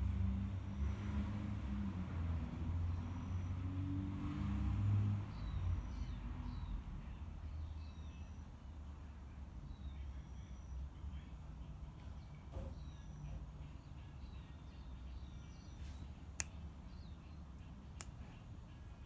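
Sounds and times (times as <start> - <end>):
small birds chirping: 2.4 - 19.0.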